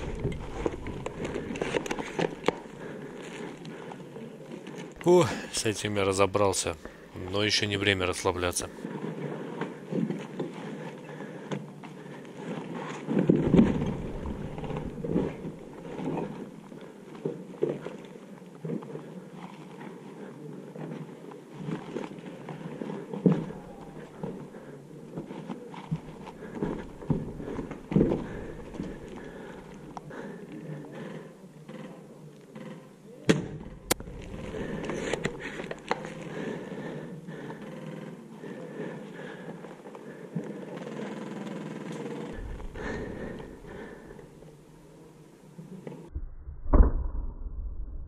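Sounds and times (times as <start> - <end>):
footsteps on brick rubble: 23.2 - 30.3, 33.6 - 36.9
heavy thud: 42.4 - 44.4.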